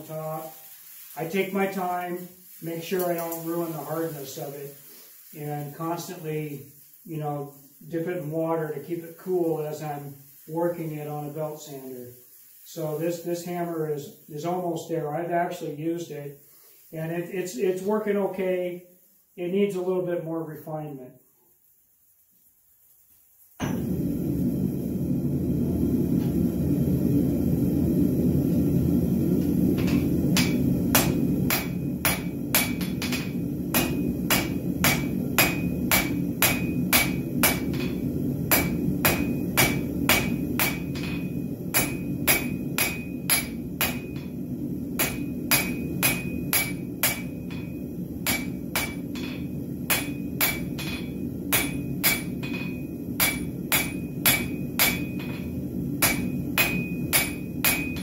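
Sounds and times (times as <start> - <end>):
gas forge burner roar: 0.0 - 11.9, 23.6 - 58.0
hammer striking hot steel: 23.6 - 24.2, 29.2 - 58.0.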